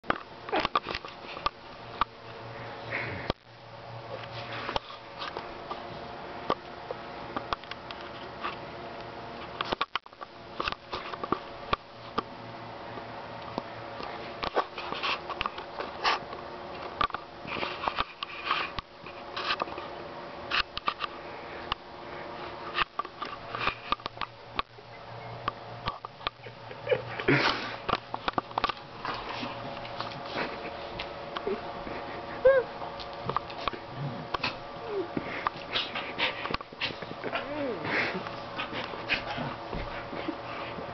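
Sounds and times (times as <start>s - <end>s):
dog sniffing and snuffling: 29.0s - 40.9s.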